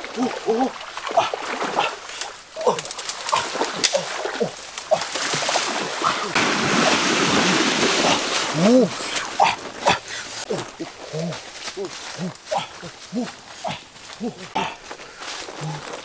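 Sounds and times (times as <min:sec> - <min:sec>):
wading through shallow water: 0:00.0 - 0:16.0.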